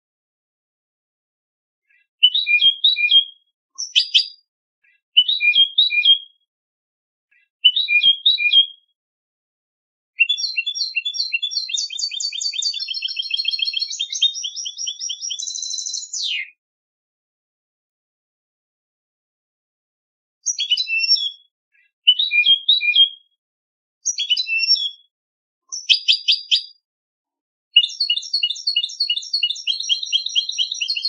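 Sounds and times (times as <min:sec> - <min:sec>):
goldfinch singing: 0:02.2 - 0:04.4, 0:05.2 - 0:06.2, 0:07.7 - 0:08.7, 0:10.2 - 0:16.5, 0:20.5 - 0:21.4, 0:24.1 - 0:25.0, 0:25.7 - 0:26.8, 0:27.8 - 0:31.0.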